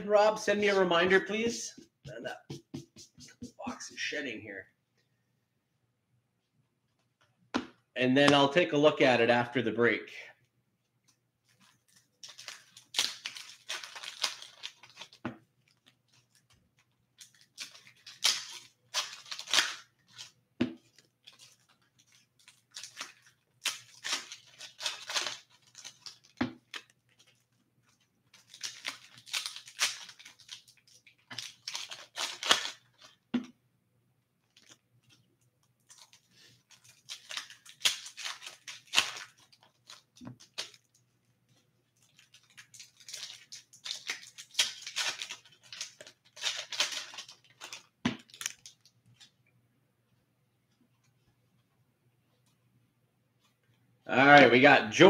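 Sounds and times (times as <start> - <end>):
cards shuffling rustle: 0.2 - 4.2, 11.1 - 33.5, 34.4 - 49.4.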